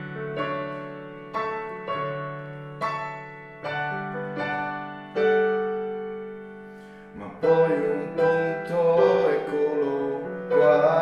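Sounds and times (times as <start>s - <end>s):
digital piano chords: 0.0s - 11.0s.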